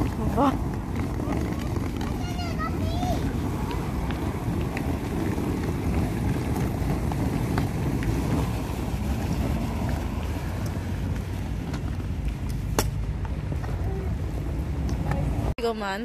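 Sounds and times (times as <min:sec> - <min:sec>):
suitcase wheels rolling on asphalt: 0:00.0 - 0:15.6.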